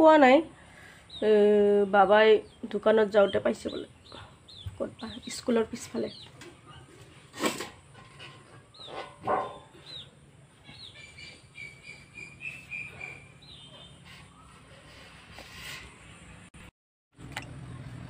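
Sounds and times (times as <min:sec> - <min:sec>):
small birds chirping: 0:00.6 - 0:07.3, 0:08.3 - 0:15.2.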